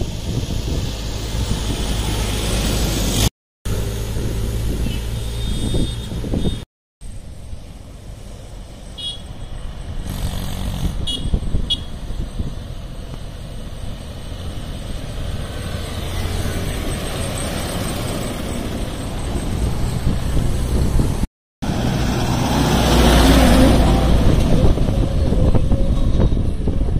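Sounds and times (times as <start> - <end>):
second tractor engine passing: 12.0 - 26.1.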